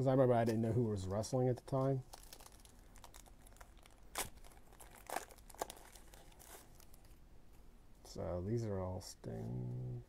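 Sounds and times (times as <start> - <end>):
wrapper crinkling and tearing: 2.0 - 7.2.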